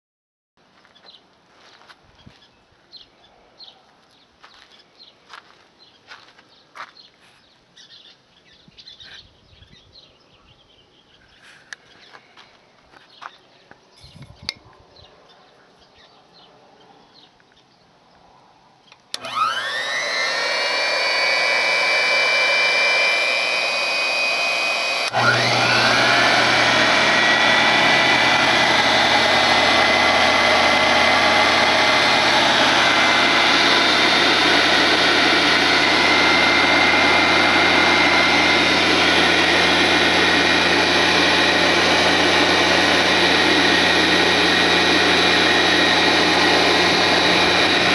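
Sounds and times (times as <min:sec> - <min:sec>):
electric motor whine: 0:19.1 - 0:47.9
second motor low hum: 0:19.2 - 0:47.9.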